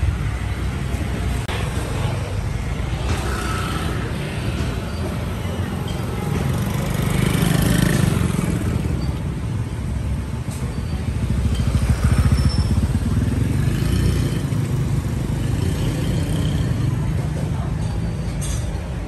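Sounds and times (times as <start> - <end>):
scooters passing: 1.2 - 9.6, 10.9 - 17.4.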